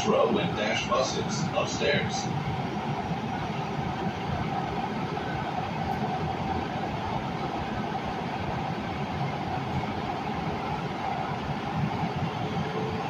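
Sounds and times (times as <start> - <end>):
steady hum: 0.0 - 7.5
train wheels rumbling on rails: 0.0 - 13.0.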